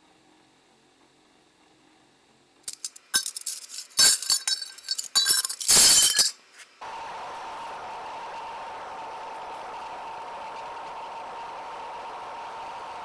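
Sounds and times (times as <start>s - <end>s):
furnace burner humming: 0.0s - 13.0s
metal clinking and clattering: 2.7s - 6.4s.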